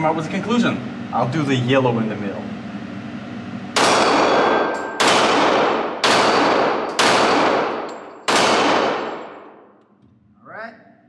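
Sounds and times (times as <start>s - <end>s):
pistol shots echoing indoors: 3.7s - 9.9s.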